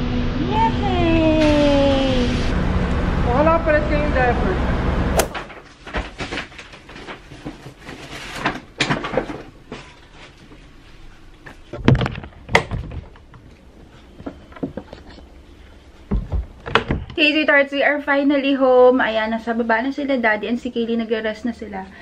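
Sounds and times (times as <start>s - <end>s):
heavy thuds: 5.1s - 5.5s.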